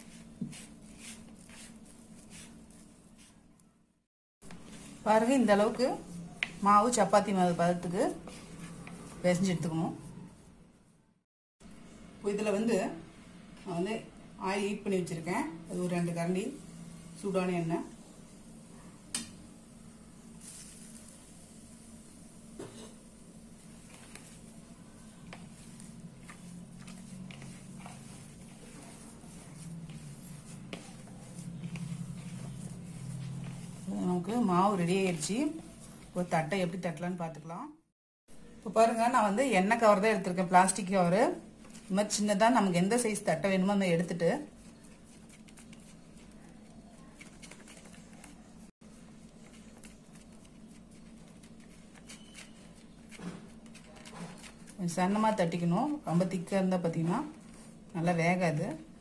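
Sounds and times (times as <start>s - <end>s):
steady low hum: 21.3s - 36.4s
plastic sheet crinkling: 44.5s - 54.8s.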